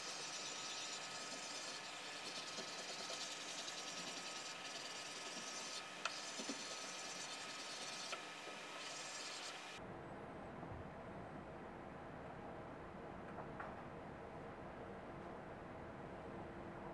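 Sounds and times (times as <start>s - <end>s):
paper rubbing on woodblock: 0.0s - 8.2s, 8.8s - 9.6s.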